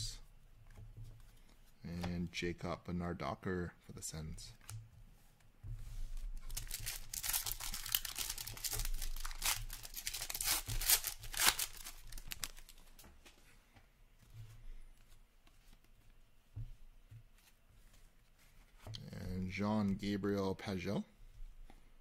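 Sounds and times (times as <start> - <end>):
foil wrapper tearing and crinkling: 6.4 - 12.8.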